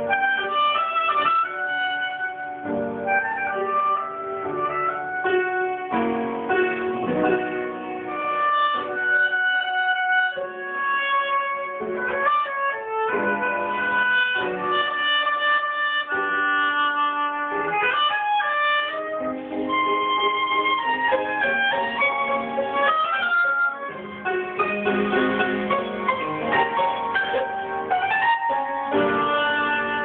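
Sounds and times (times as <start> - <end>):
oboe melody: 0.0 - 30.0.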